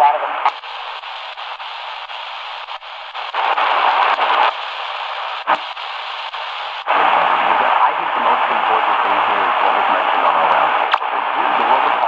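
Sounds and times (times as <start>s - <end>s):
radio static hissing: 0.0s - 12.0s
sharp crackle: 0.4s - 7.2s.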